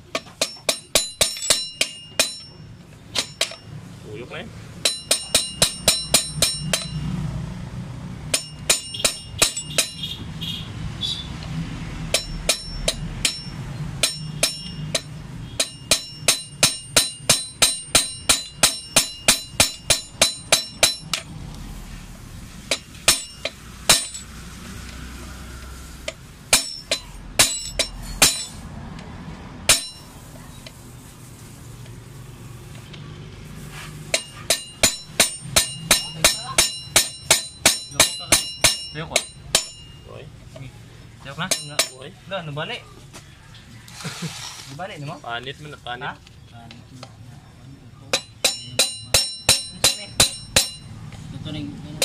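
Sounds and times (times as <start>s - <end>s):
hammer striking metal punch: 0.0s - 3.7s, 4.8s - 7.1s, 8.3s - 10.2s, 12.1s - 21.3s, 22.7s - 24.3s, 26.1s - 28.6s, 29.7s - 30.1s, 34.1s - 40.1s, 41.4s - 42.1s, 48.1s - 51.0s.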